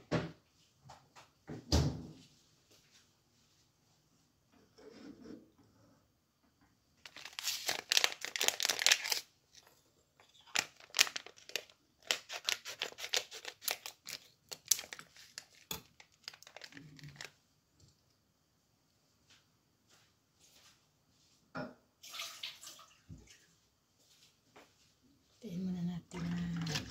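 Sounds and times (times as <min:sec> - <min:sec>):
packaging crinkling and tearing: 0:07.0 - 0:17.4.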